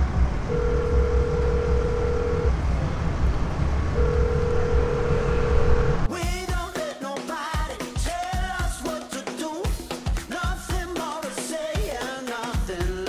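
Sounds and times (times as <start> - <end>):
passing traffic rumble: 0.0 - 6.1
steady tone: 0.0 - 6.1
music with a beat: 6.1 - 13.0.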